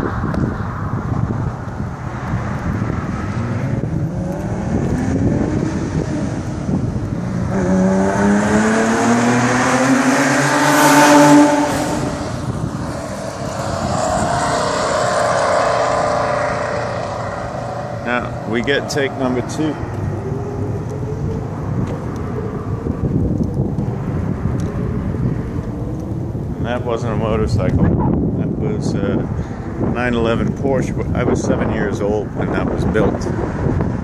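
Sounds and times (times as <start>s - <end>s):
car engine accelerating past: 2.8s - 26.8s.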